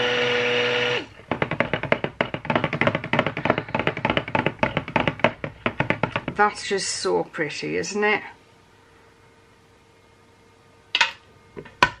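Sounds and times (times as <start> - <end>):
stick blender motor whining: 0.0 - 1.1
blender knocking against plastic jug: 1.3 - 6.4.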